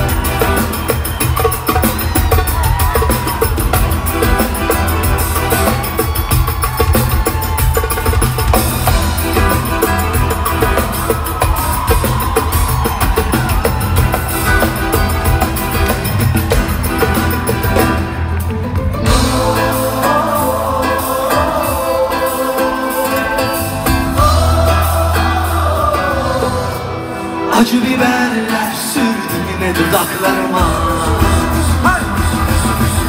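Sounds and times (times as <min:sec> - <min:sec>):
pop band playing: 0:00.0 - 0:33.0
man singing: 0:19.1 - 0:33.0.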